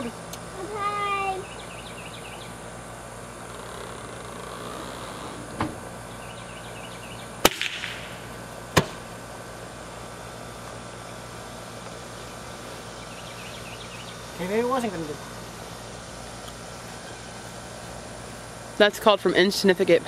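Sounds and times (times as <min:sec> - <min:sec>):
potato cannon bangs: 0:07.4 - 0:09.1
sharp crack: 0:07.4 - 0:09.1.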